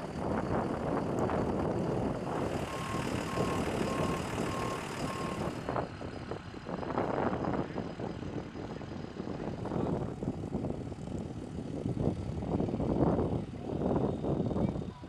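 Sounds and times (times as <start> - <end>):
tow tractor running: 0.0 - 15.0
reversing alarm beeps: 2.4 - 5.7.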